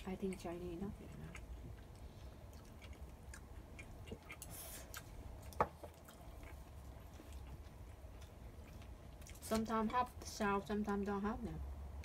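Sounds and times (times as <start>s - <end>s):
soft chewing: 0.0s - 11.1s
low steady hum: 0.0s - 12.0s.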